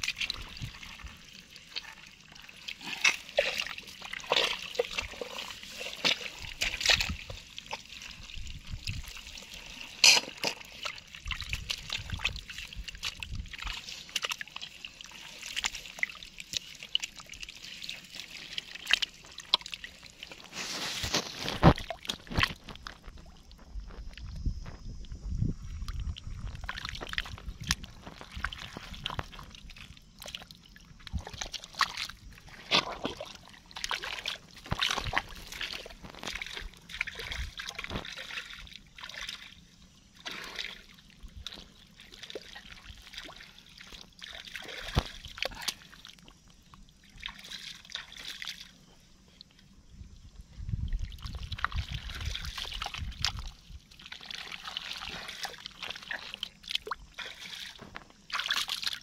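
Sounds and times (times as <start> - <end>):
water splashes: 0.0 - 24.2, 25.7 - 49.5, 50.7 - 59.0
mud squelching and sloshing: 0.0 - 24.8, 25.7 - 49.7, 50.6 - 59.0.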